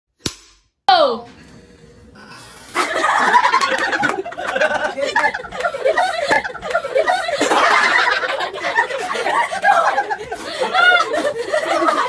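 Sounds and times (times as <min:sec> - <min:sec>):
excited voices: 0:02.6 - 0:12.0
group of people laughing: 0:02.6 - 0:12.0.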